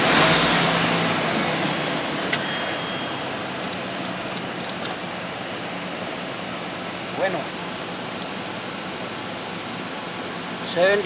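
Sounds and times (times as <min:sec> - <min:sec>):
pickup engine revving and idling: 0:00.0 - 0:06.0.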